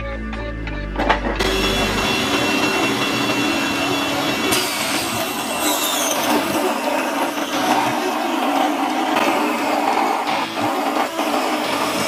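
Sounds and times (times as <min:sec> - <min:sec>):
table saw cutting wood: 0:01.2 - 0:12.0.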